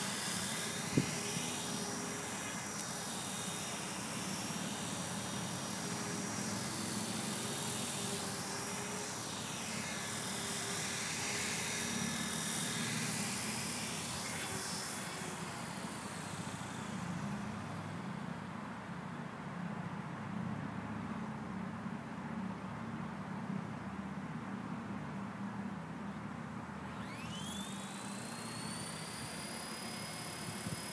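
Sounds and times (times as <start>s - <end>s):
rc helicopter whine: 0.0s - 19.5s, 25.8s - 30.9s.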